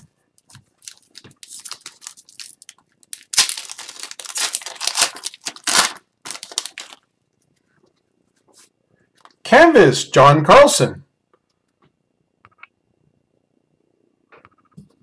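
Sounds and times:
card pack wrapper tearing: 0.8s - 7.0s.

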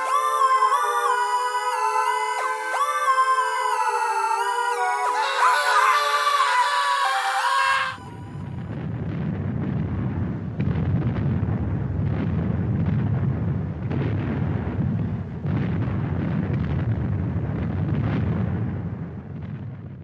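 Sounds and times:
wind rumbling on microphone: 8.3s - 20.0s.

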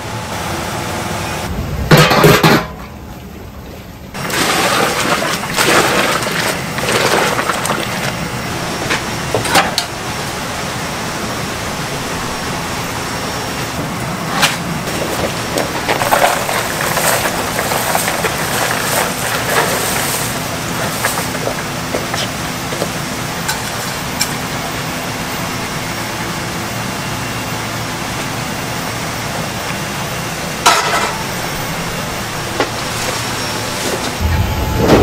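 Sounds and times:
pot boiling hard: 4.1s - 26.8s.

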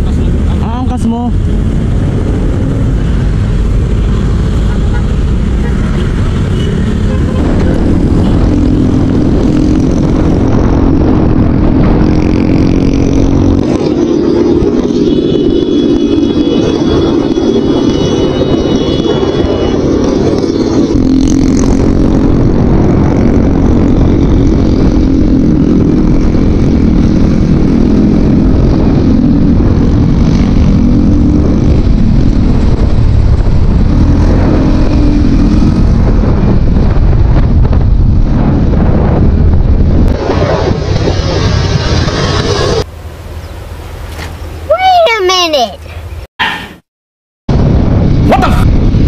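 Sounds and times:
motorcycle engine drone: 0.0s - 44.6s, 47.5s - 49.0s
wind rush: 0.0s - 45.1s, 47.5s - 49.0s
road rumble: 0.0s - 46.8s, 47.5s - 49.0s.

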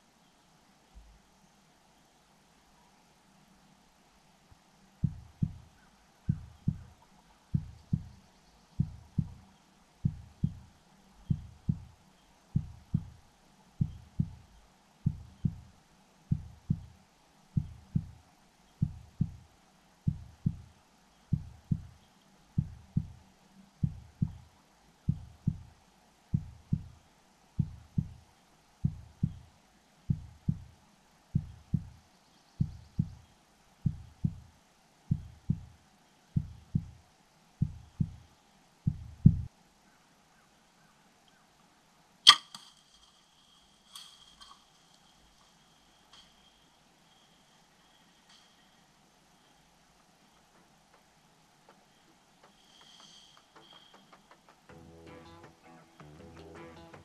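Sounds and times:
slow heartbeat: 5.0s - 8.2s, 8.8s - 13.2s, 13.8s - 15.7s, 16.3s - 18.2s, 18.8s - 23.2s, 23.8s - 24.5s, 25.1s - 27.0s, 27.6s - 28.2s, 28.8s - 29.5s, 30.1s - 30.8s, 31.4s - 32.0s, 32.6s - 33.2s, 33.8s - 34.5s, 35.1s - 35.7s, 36.4s - 37.0s, 37.6s - 38.2s, 38.8s - 39.5s.

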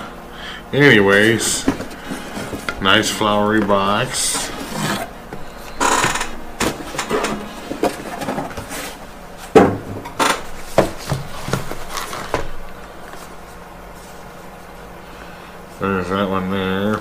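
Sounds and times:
cardboard rustling and scraping: 1.1s - 14.6s
boxes knocking on desk: 9.5s - 12.5s.

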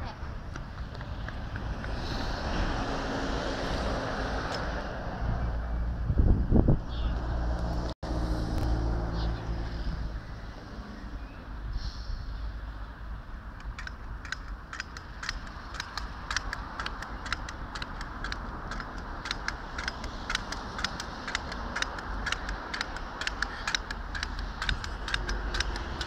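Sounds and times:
pogo stick clicks on tarmac: 0.5s - 2.6s, 13.5s - 26.0s.

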